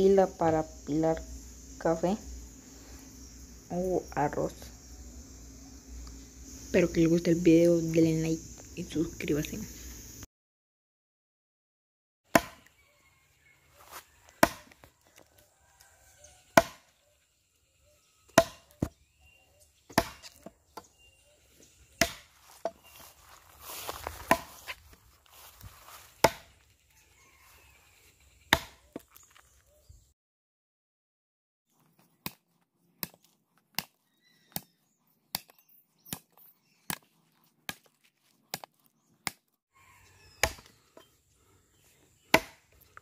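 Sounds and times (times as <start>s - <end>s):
axe chopping into log: 12.3s - 12.7s, 14.4s - 14.9s, 16.6s - 16.9s, 18.3s - 19.0s, 19.9s - 20.9s, 22.0s - 22.8s, 24.2s - 24.7s, 26.2s - 26.6s, 28.5s - 29.1s, 33.0s - 34.7s, 38.5s - 39.4s, 40.4s - 40.8s, 42.3s - 42.8s.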